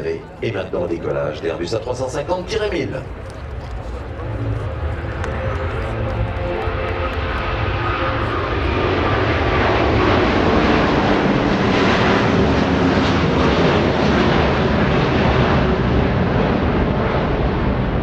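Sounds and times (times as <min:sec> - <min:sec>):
jet engines rumbling: 0:00.0 - 0:18.0.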